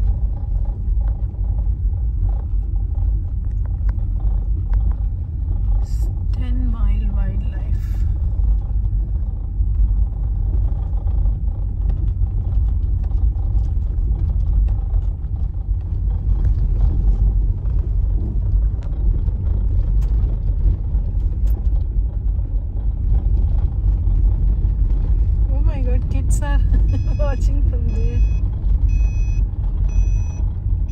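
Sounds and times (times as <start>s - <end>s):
car rolling over gravel: 8.2s - 27.6s.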